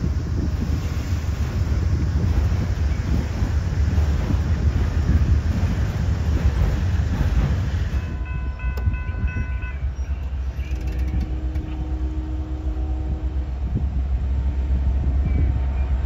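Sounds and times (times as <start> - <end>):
freight cars rumbling: 0.0 - 16.0
diesel locomotive horn: 8.0 - 16.0.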